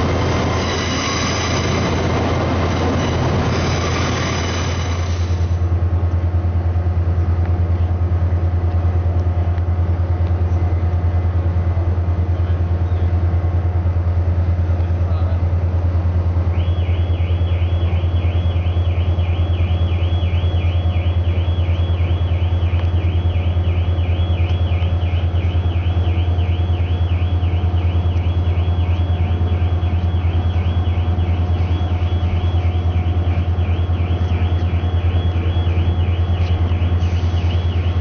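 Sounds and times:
electronic warbling alarm tone: 0:00.0 - 0:05.6, 0:16.6 - 0:38.0.

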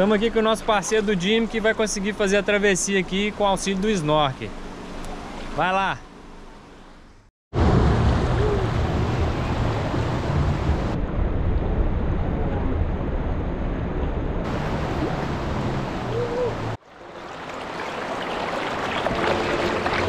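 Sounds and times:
river water rushing over rocks: 0:14.5 - 0:20.0.

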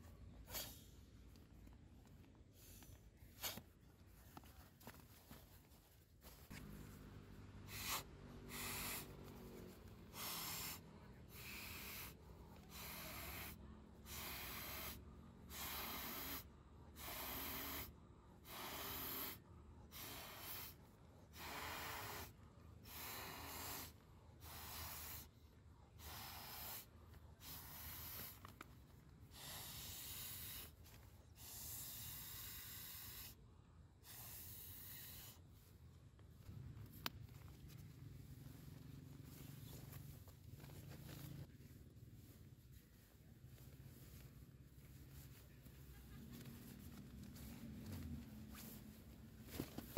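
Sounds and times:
person blowing into a valve: 0:17.0 - 0:25.3, 0:29.3 - 0:30.7, 0:31.4 - 0:33.4, 0:34.0 - 0:35.4.

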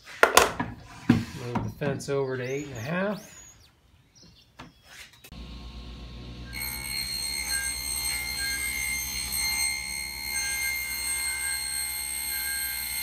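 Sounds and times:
table saw whining: 0:05.3 - 0:13.0.

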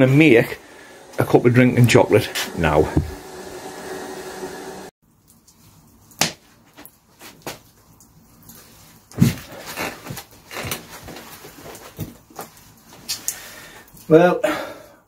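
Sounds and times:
kettles steaming hiss: 0:00.0 - 0:04.9
knocks and rustles: 0:09.1 - 0:13.1.

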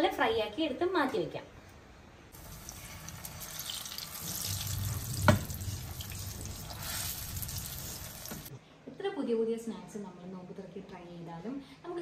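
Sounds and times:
dumplings sizzling in oil: 0:02.4 - 0:08.5.

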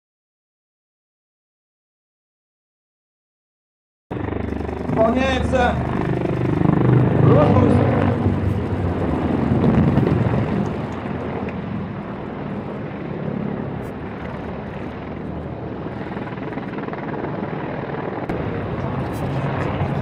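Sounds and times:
helicopters flying overhead: 0:04.1 - 0:20.0.

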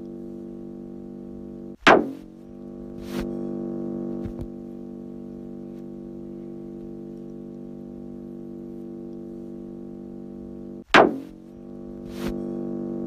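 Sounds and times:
electronic drone: 0:00.0 - 0:13.0
sharp zap sweeping down: 0:01.8 - 0:02.3, 0:10.9 - 0:11.4.

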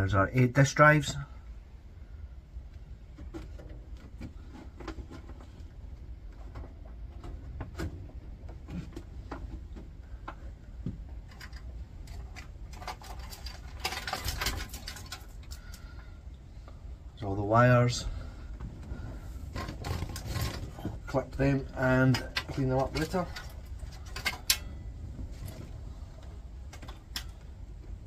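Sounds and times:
rattling in metal chassis: 0:11.2 - 0:15.7, 0:19.0 - 0:28.0.

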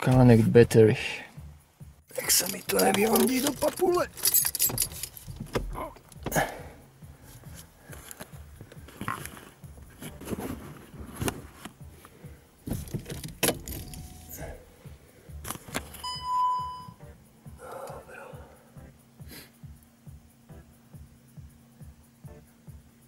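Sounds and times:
wrench clinking on metal: 0:02.2 - 0:05.4, 0:13.2 - 0:14.4
short electronic beep: 0:16.0 - 0:17.1.

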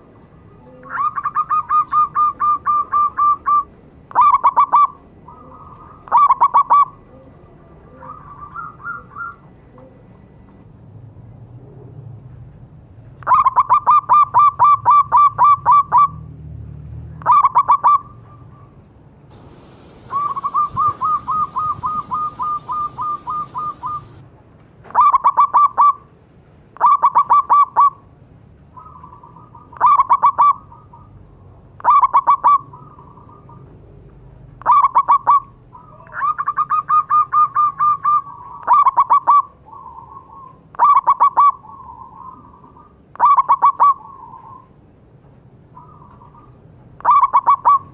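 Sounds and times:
doves cooing: 0:00.1 - 0:10.6, 0:19.3 - 0:24.2, 0:34.6 - 0:44.8, 0:45.8 - 0:47.9.

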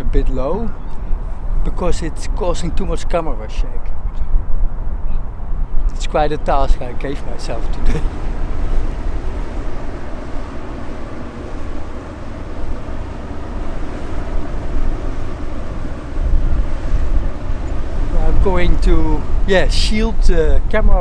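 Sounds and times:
wind rumbling on microphone: 0:00.0 - 0:21.0
barge engine drone: 0:04.4 - 0:21.0.

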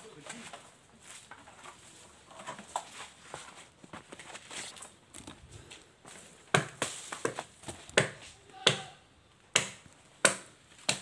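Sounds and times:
machete chopping palm fronds: 0:06.5 - 0:11.0.

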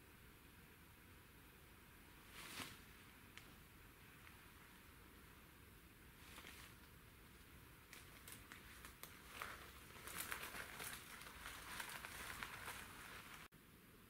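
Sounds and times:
leaves and twigs crackling underfoot: 0:02.3 - 0:02.9, 0:06.1 - 0:13.5.

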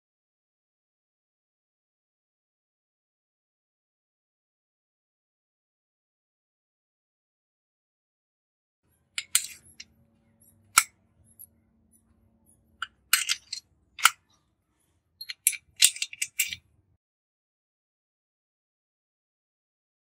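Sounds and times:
spanner clicking on metal bolts: 0:09.2 - 0:09.8, 0:10.4 - 0:11.5, 0:12.8 - 0:14.2, 0:15.2 - 0:16.6
metal parts clinking: 0:09.2 - 0:14.4, 0:15.2 - 0:16.7.

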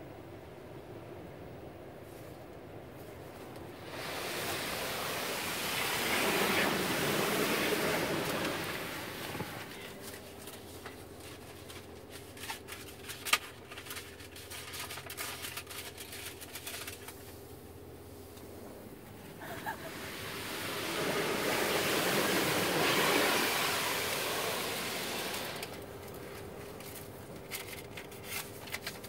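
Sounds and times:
car wash spray and brushes: 0:03.0 - 0:13.0, 0:16.3 - 0:29.0.

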